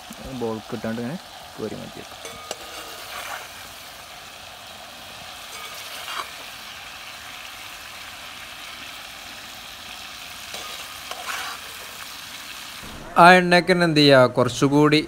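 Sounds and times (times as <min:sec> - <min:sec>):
prawns sizzling in oil: 0:00.0 - 0:12.9
spoon scraping a pan: 0:02.2 - 0:03.8, 0:05.2 - 0:06.9, 0:10.4 - 0:12.2.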